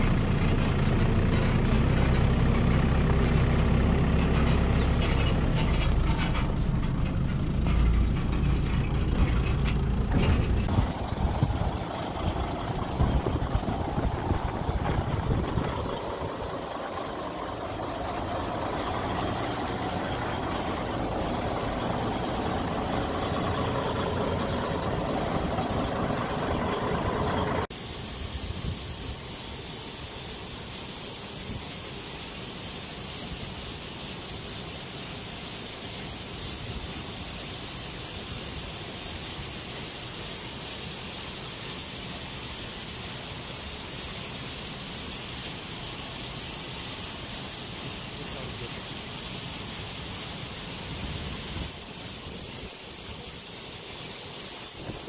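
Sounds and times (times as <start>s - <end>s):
diesel engine idling: 0.0s - 27.7s
grain pouring hiss: 10.7s - 55.0s.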